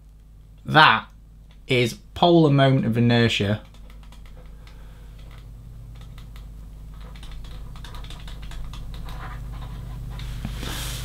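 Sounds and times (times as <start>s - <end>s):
low hum: 0.0s - 11.0s
pen tapping and scratching tablet: 3.6s - 4.6s, 5.2s - 10.3s.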